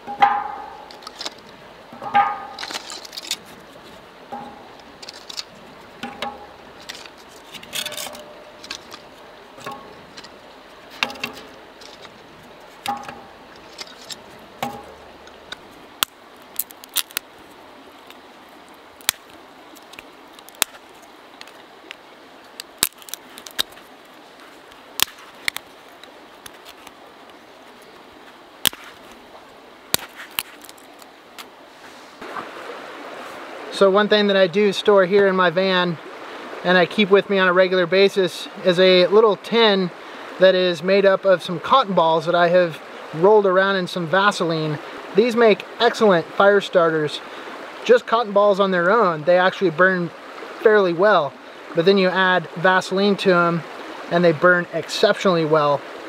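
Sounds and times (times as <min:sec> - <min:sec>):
sticks and wood clinking: 0:00.0 - 0:17.3, 0:19.0 - 0:27.0, 0:30.0 - 0:31.5
creek rushing: 0:00.0 - 0:56.0.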